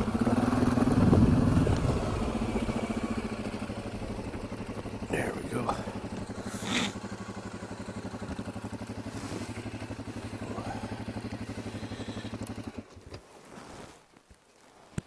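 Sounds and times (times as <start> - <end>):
atv engine running: 0.0 - 13.6
tyres on gravel: 8.2 - 15.0.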